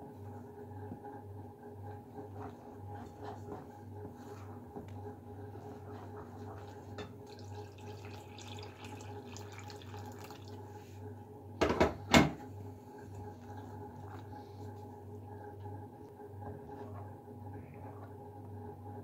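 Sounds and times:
water pouring into a bowl: 0:06.6 - 0:10.8.

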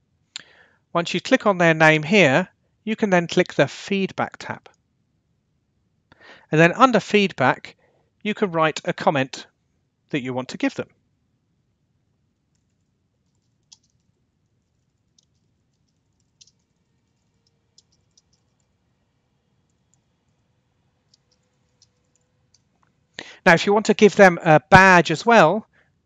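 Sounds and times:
computer keyboard keystrokes: 0:13.3 - 0:14.0.

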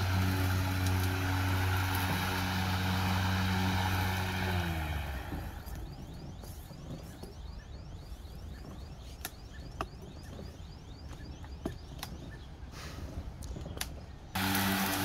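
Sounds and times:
lawn mower motor hum: 0:00.0 - 0:06.5, 0:14.3 - 0:15.0.

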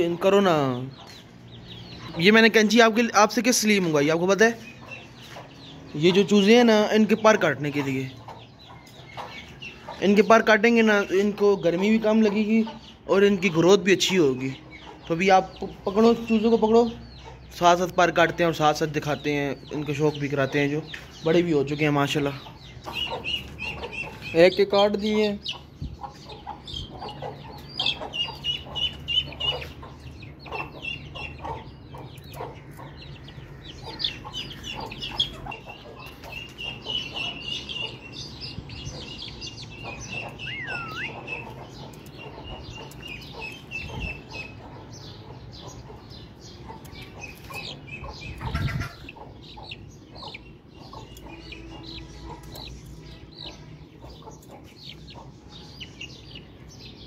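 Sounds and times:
chickens clucking: 0:00.0 - 0:57.0
chicks peeping: 0:00.0 - 0:57.0.

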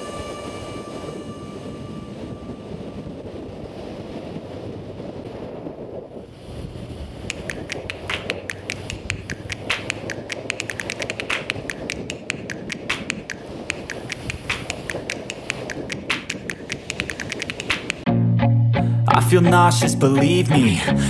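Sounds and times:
faint steady tone: 0:00.0 - 0:04.0
wind buffeting microphone: 0:00.0 - 0:18.1
sharp uneven clicks: 0:07.3 - 0:18.1.

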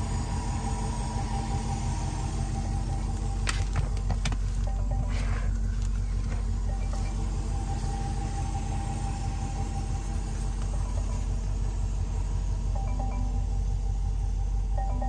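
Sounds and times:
car rumbling: 0:00.0 - 0:15.0
faint music with mallet notes: 0:04.6 - 0:05.7, 0:06.6 - 0:07.5, 0:12.7 - 0:13.9, 0:14.7 - 0:15.0.

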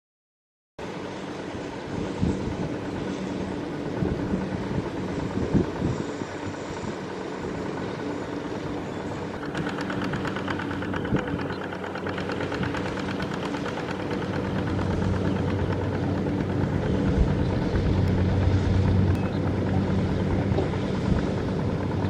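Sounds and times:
diesel tractor engine running: 0:00.9 - 0:22.0
rapid even clatter: 0:09.4 - 0:17.4.

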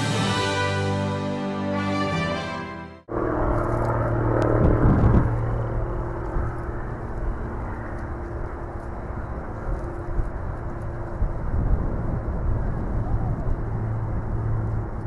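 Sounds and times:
low rumble: 0:03.1 - 0:15.0
turboprop propeller drone: 0:03.1 - 0:15.0.

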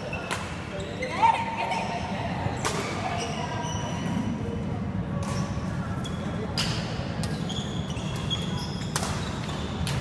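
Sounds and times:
low hall hum: 0:00.0 - 0:10.0
shoes squeaking on court: 0:02.8 - 0:04.2, 0:05.3 - 0:10.0
racket hitting shuttlecock: 0:08.9 - 0:09.2.

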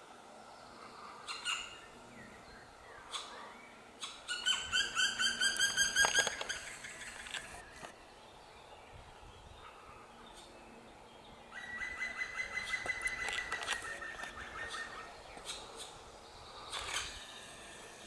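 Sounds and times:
steady-pitched bird call: 0:00.7 - 0:07.7, 0:11.5 - 0:17.8
woodpecker ringing call notes: 0:04.0 - 0:07.0, 0:11.5 - 0:15.9.

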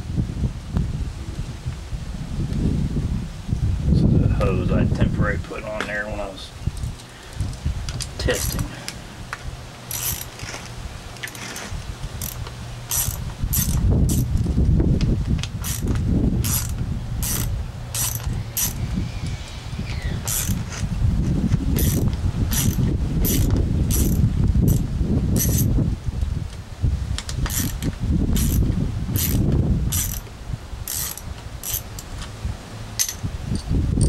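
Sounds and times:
low rumble: 0:06.5 - 0:34.0
hand ratchet clicking: 0:08.4 - 0:08.7, 0:09.9 - 0:14.3, 0:15.6 - 0:18.8, 0:20.2 - 0:20.6, 0:21.8 - 0:24.8, 0:25.4 - 0:25.7, 0:27.4 - 0:28.6, 0:29.2 - 0:30.2, 0:30.9 - 0:32.2, 0:33.0 - 0:33.7.

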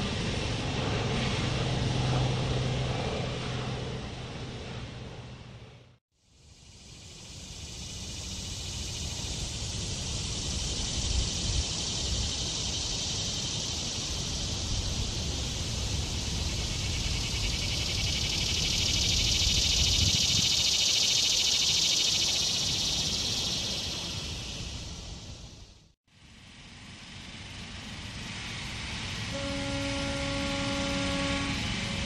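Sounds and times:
cicada buzzing drone: 0:06.2 - 0:25.7, 0:26.3 - 0:32.0.

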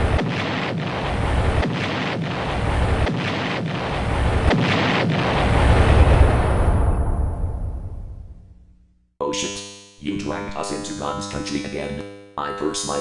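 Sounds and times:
cartoon explosion rumble: 0:00.0 - 0:08.6.

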